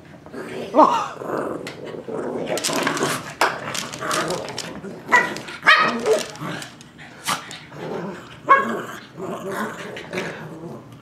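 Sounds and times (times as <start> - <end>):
dogs scuffling: 2.4 - 7.6
dogs barking: 3.7 - 7.4.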